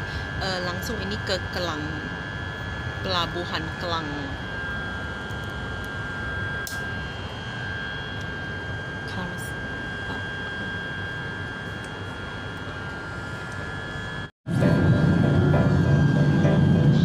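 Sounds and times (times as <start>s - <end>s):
high whine: 0.0s - 17.0s
train running rumble: 14.5s - 17.0s.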